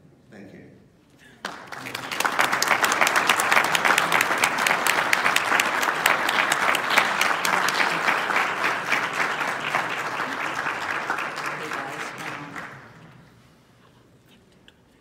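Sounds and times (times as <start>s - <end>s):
audience applauding: 1.4s - 13.3s.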